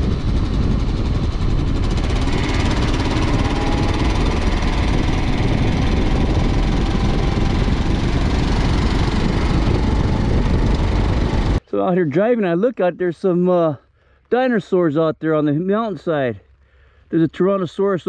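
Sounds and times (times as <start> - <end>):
motorcycle engine running: 0.0 - 11.6
wind noise on microphone: 0.0 - 11.6.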